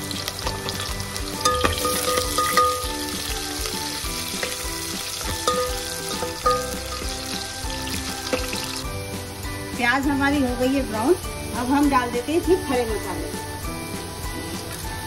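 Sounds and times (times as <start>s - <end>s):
onions sizzling in oil: 0.0s - 15.0s
metal spoon clinking on pot: 1.4s - 3.0s, 5.4s - 7.2s.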